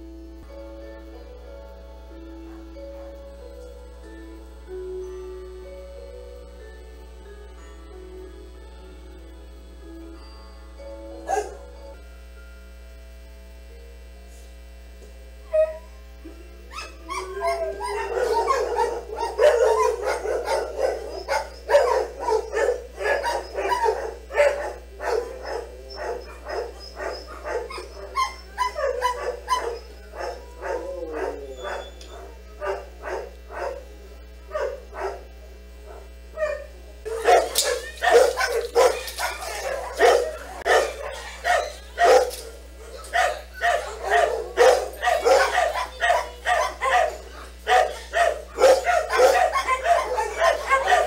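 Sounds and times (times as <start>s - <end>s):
dog yipping barks: 16.8s - 30.8s, 36.4s - 51.0s.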